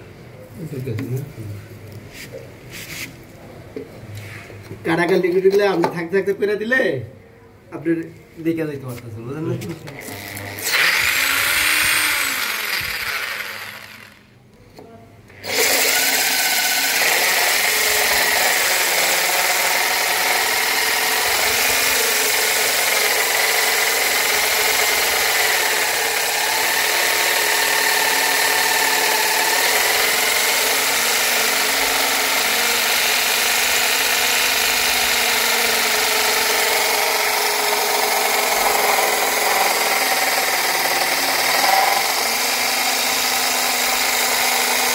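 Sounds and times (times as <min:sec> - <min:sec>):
electric drill grinding stone: 0:09.9 - 0:14.3, 0:15.4 - 0:44.9.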